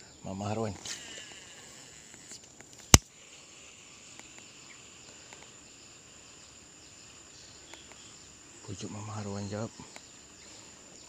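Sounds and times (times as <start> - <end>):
faint chirps: 0.0 - 11.0
high-pitched insect drone: 0.0 - 11.0
small ticks: 0.7 - 5.8, 7.4 - 8.2, 9.8 - 11.0.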